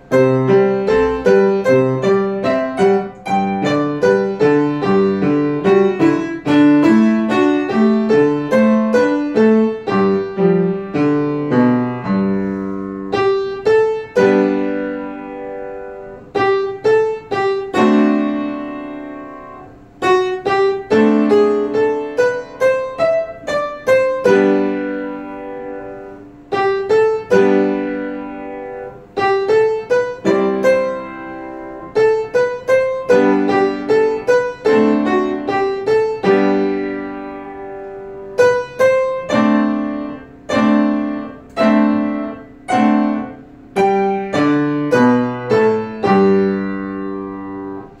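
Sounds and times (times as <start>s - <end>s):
piano melody and chords: 0.0s - 48.0s.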